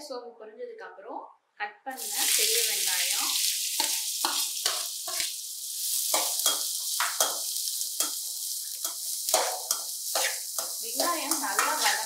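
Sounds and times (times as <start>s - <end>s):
onions sizzling in hot oil: 1.9s - 12.0s
metal spatula scraping and stirring: 3.4s - 12.0s.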